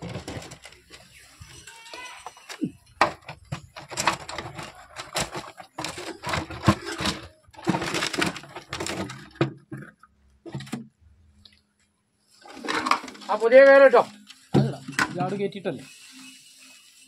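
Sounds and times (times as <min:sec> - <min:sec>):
hard objects clattering: 0:00.0 - 0:10.9, 0:12.4 - 0:13.5.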